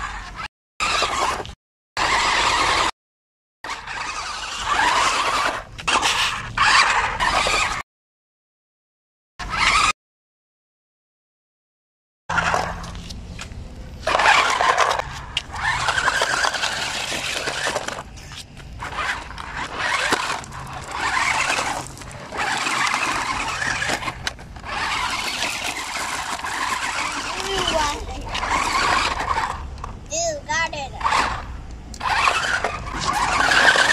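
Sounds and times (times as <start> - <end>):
electric toy motors whining: 0.0 - 2.9, 3.7 - 7.8, 9.4 - 10.0, 14.0 - 29.8, 30.6 - 33.9
tyres crunching over gravel: 12.4 - 30.0.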